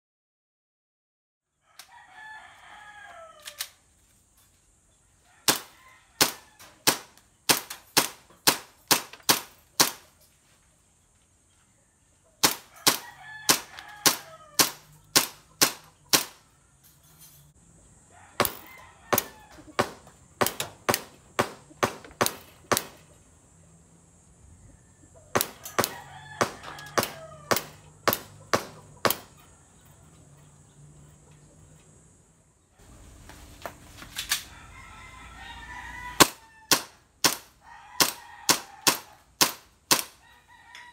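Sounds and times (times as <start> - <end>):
rooster crowing: 1.5 - 3.8, 5.2 - 6.8, 12.4 - 15.0, 17.9 - 20.1, 24.6 - 28.4, 34.4 - 39.4, 40.1 - 40.9
airsoft pistol shots: 5.5 - 10.0, 12.4 - 16.4, 18.4 - 23.0, 25.4 - 29.3, 36.2 - 40.2.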